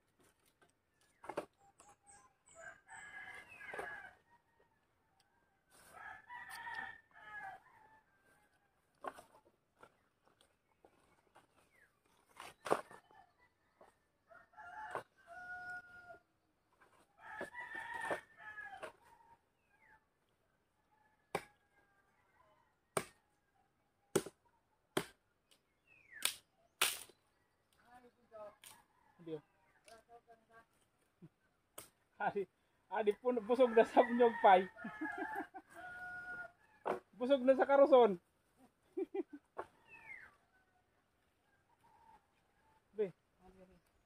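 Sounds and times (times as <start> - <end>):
rooster crowing: 5.8 - 8.6, 13.8 - 16.2, 17.2 - 18.9, 33.7 - 36.9
machete chopping firewood: 21.3 - 21.6, 22.9 - 23.2, 24.1 - 25.2, 26.2 - 27.1.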